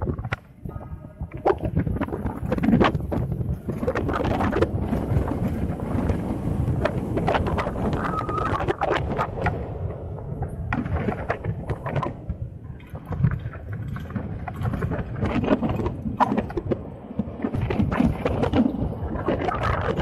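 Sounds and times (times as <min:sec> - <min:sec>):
wind noise on microphone: 0:00.0 - 0:20.0.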